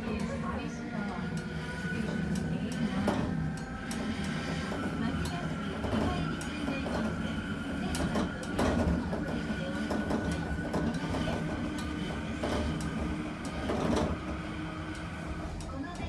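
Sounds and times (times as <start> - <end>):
steady rumble: 0.0 - 16.0
thin steady whine: 0.0 - 16.0
tram wheels clattering over rails: 0.0 - 16.0.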